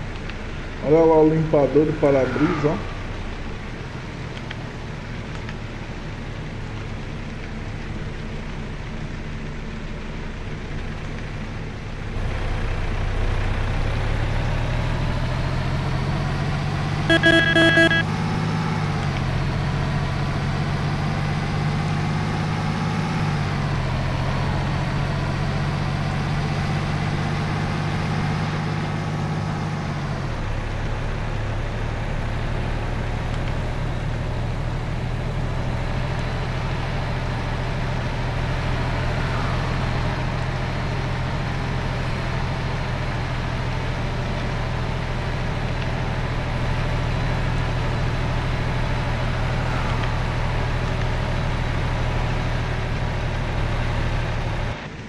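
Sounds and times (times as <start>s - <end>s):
truck engine running: 7.8s - 22.2s
short pulsed beep: 17.1s - 18.0s.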